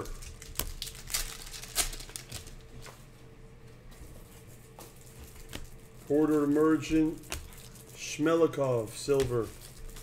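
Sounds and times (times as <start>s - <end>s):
trading cards rustling and snapping: 0.0s - 2.9s
faint steady hum: 0.0s - 10.0s.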